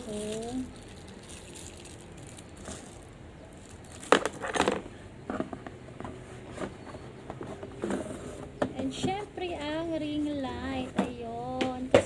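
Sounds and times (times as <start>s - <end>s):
plastic packaging crinkling: 0.0s - 4.9s.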